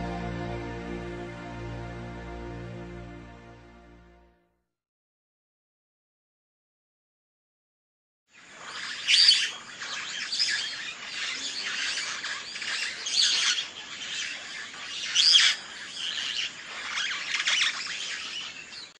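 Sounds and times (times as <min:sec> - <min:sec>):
birds chirping and calling: 0:08.4 - 0:19.0.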